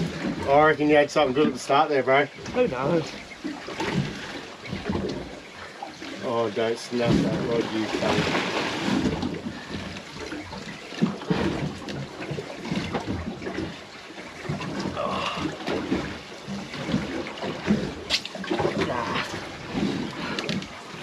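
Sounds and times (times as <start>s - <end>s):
water slapping against boat hull: 0.0s - 21.0s.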